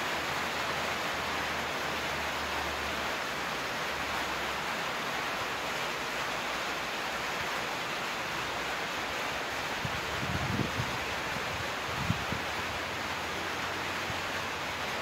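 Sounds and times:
rain hissing: 0.0s - 15.0s
wind buffeting microphone: 9.8s - 12.6s.

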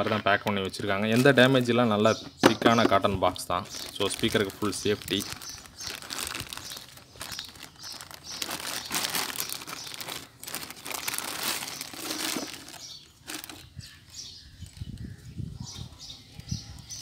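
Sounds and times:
plastic bag crinkling: 3.7s - 13.8s.

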